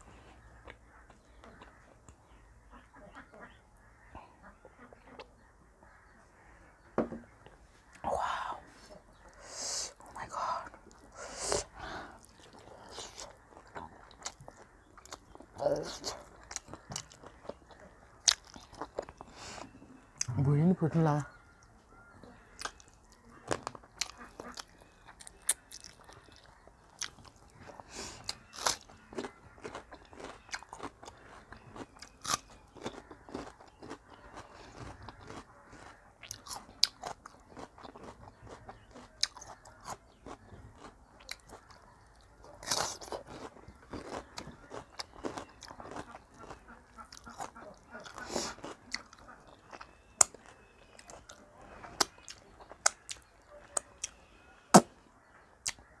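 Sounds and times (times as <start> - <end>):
person chewing: 9.3 - 20.4, 22.5 - 54.9.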